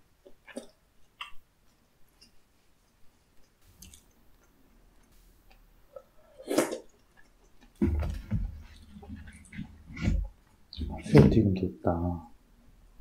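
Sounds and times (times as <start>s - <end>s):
mouth clicks and chewing: 2.2s - 5.2s.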